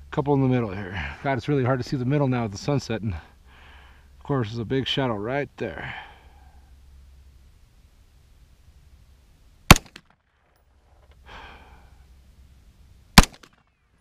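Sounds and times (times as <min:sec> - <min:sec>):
pistol shots: 0:09.7 - 0:10.2, 0:13.2 - 0:13.6.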